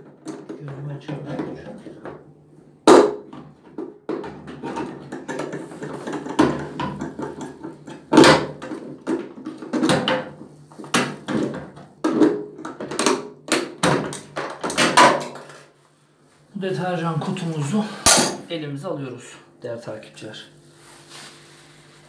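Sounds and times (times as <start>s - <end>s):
hard plastic knocking and scraping: 3.3s - 15.2s.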